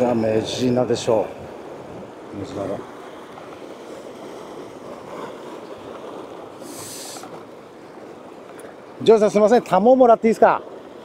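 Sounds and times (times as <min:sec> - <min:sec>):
wind on microphone: 0:00.0 - 0:08.3
surf washing on rocks: 0:00.0 - 0:11.0.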